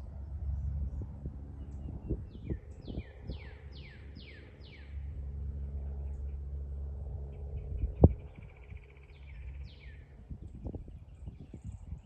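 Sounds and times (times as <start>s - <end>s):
low rumble: 0.0s - 12.0s
songbirds whistling: 1.7s - 4.9s.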